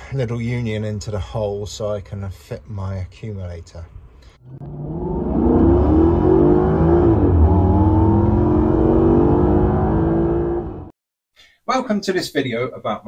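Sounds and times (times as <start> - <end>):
car engine revving: 4.4 - 10.9.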